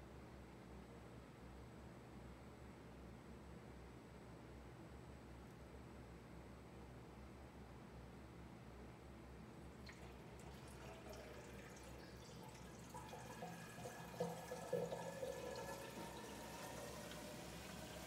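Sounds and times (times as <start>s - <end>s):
trickling and gurgling water: 9.7s - 18.0s.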